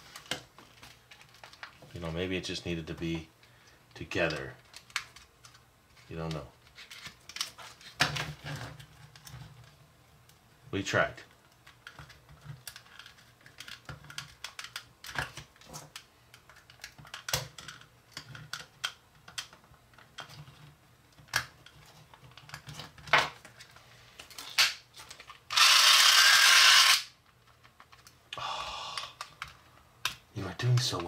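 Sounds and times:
toy motor whirring: 25.5s - 27.1s.

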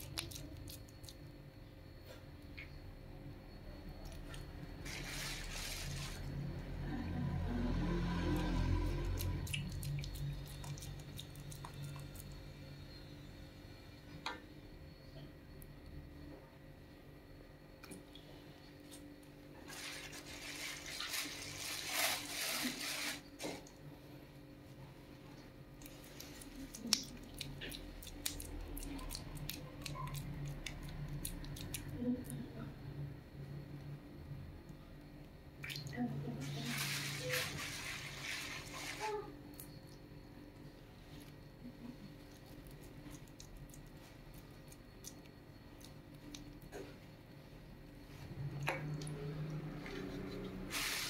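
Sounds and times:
wet squishes of meat paste: 0.0s - 1.3s, 7.7s - 12.6s, 25.8s - 32.4s, 42.2s - 46.9s, 48.1s - 51.0s
low steady hum: 0.0s - 51.0s.

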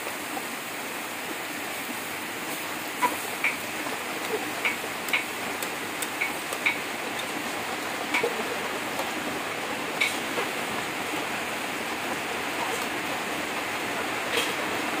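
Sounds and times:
meat sizzling: 2.5s - 8.3s.

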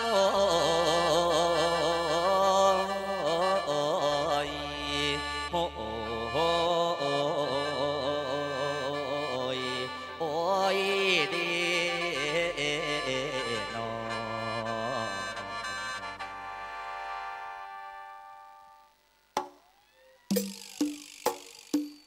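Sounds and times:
man singing wavering phrases: 0.0s - 15.4s.

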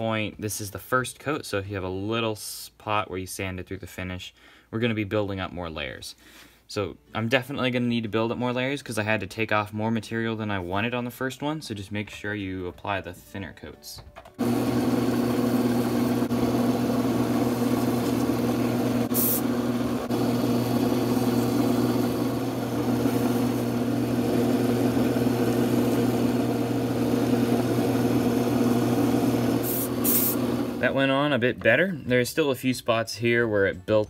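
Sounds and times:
lathe motor humming: 14.4s - 30.8s.

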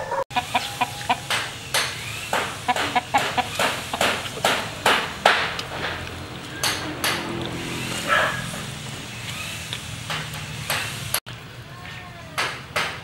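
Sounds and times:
chickens clucking: 0.0s - 11.0s
wet chewing smacks and clicks: 5.5s - 10.4s.

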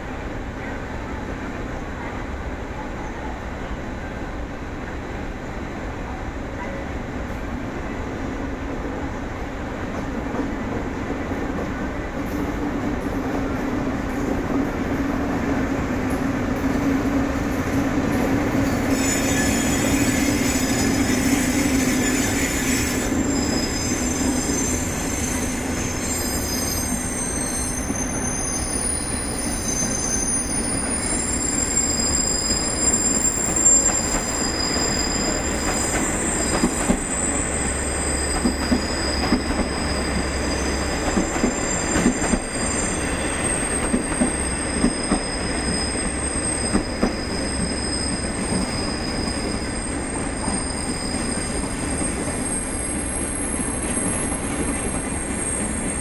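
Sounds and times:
train wheels rumbling: 7.2s - 56.0s
wheels squealing: 18.8s - 54.3s.

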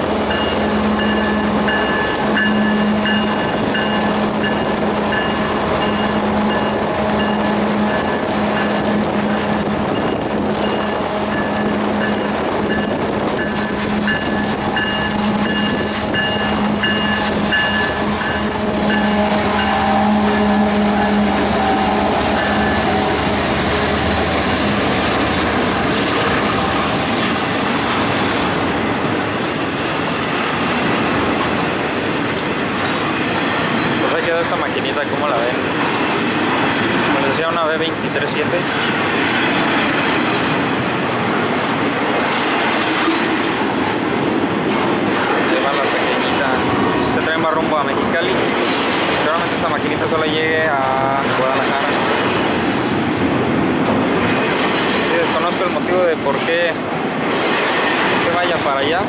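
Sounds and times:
diesel locomotive engine hum: 0.0s - 59.0s
freight cars rolling on rails: 0.0s - 59.0s
high pulsing tone: 0.3s - 26.3s.

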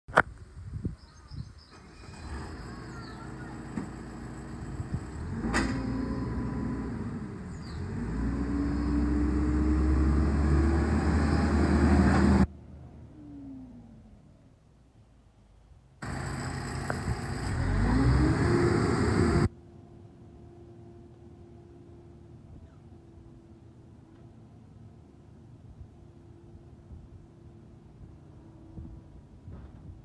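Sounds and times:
diesel engine running: 1.7s - 12.5s, 16.0s - 19.5s.

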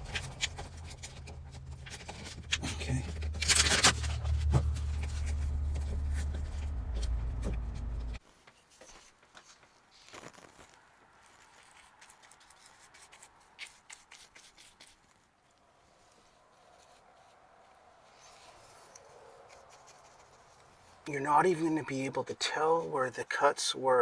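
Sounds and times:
steady low hum: 0.0s - 8.2s
hands rubbing patch on wall: 11.4s - 15.2s.

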